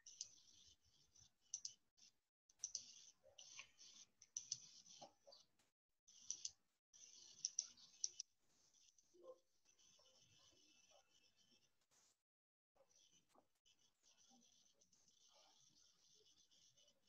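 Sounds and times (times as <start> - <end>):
faint computer mouse clicks: 0.0 - 0.4, 1.5 - 1.8, 2.5 - 5.4, 6.1 - 6.6, 7.2 - 8.2.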